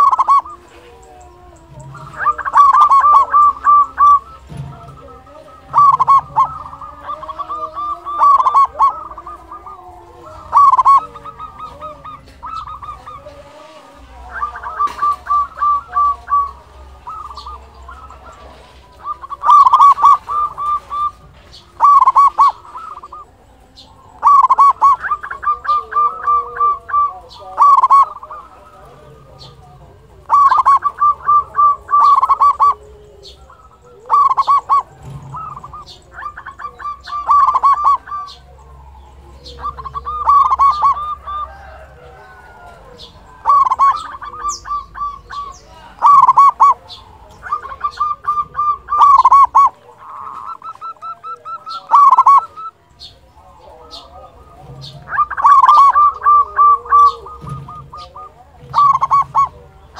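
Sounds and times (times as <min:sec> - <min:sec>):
dove cooing: 0:00.0 - 0:59.9.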